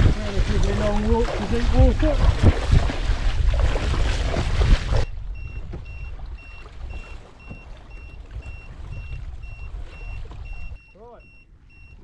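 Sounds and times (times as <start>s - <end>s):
water lapping around kayak: 0.0s - 12.0s
soft knocks on hull: 2.2s - 9.2s
short high electronic beeps: 5.4s - 12.0s.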